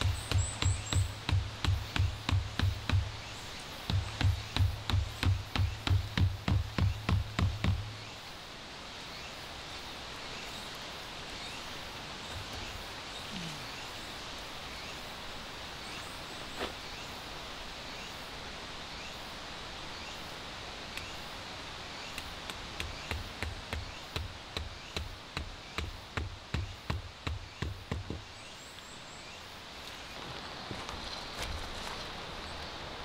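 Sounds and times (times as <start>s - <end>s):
hammer knocking peg into ground: 0.0s - 7.9s
outdoor background noise: 0.0s - 33.0s.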